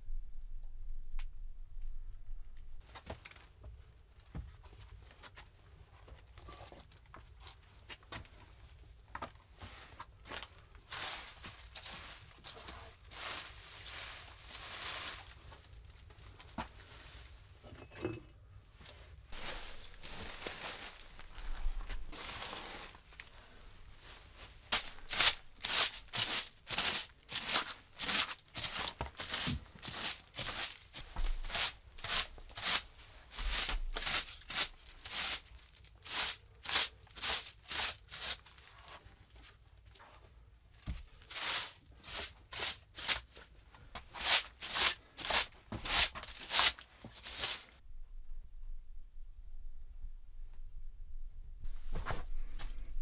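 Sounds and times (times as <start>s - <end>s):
hand tool scraping wooden board: 24.8s - 35.4s, 44.2s - 47.7s.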